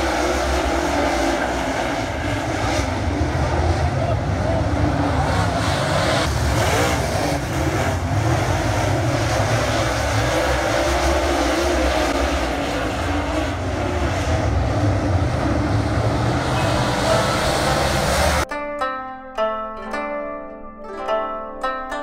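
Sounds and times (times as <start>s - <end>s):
race car engines roaring: 0.0s - 18.5s.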